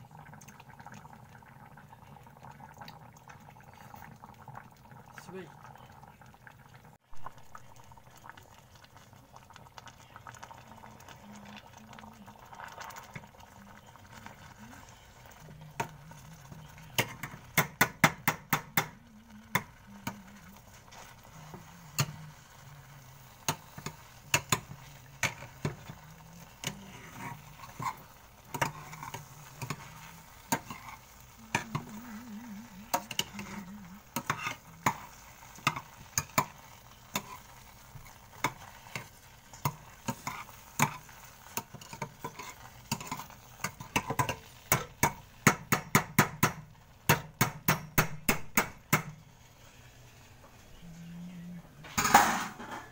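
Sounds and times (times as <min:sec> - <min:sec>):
potato masher knocking on saucepan: 0:17.0 - 0:19.0, 0:43.9 - 0:49.1.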